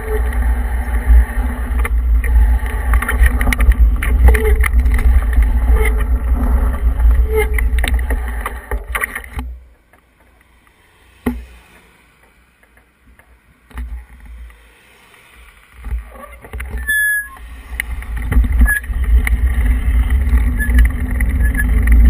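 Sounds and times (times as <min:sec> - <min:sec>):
wind rumbling on microphone: 0:00.0 - 0:09.4, 0:15.8 - 0:22.0
car passing: 0:10.2 - 0:13.4, 0:14.0 - 0:16.0.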